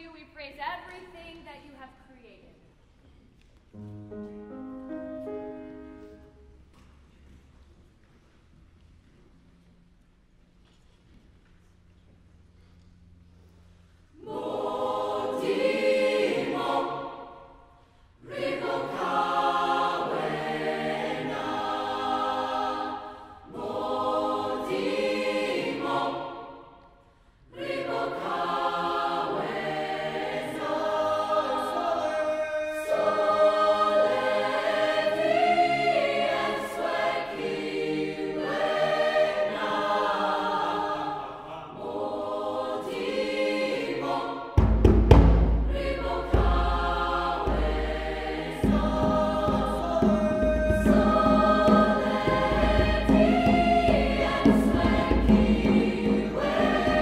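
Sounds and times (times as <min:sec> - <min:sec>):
choir singing: 0:14.1 - 0:44.8, 0:45.4 - 0:57.0.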